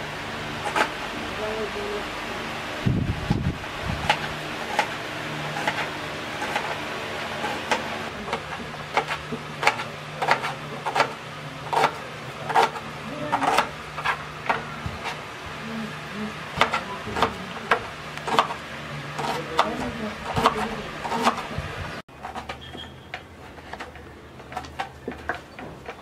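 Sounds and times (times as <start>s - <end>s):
knife chopping on cutting board: 4.0s - 15.2s, 16.6s - 18.6s, 19.2s - 21.6s.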